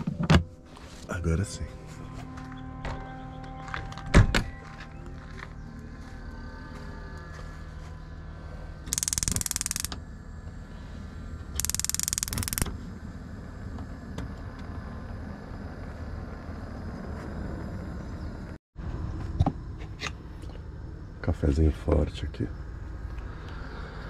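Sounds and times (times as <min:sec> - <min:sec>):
gas igniter clicking rapidly: 0:08.9 - 0:10.0, 0:11.6 - 0:12.7.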